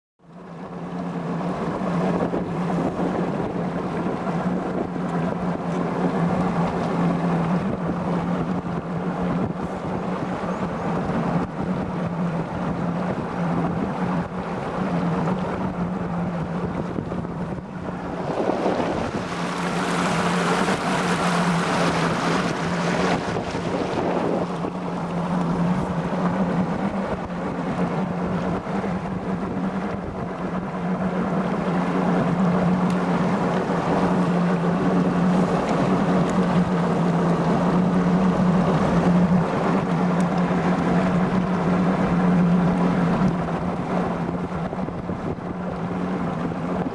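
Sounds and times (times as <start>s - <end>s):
outboard motor running: 0.2s - 46.9s
water and wind noise: 0.2s - 46.9s.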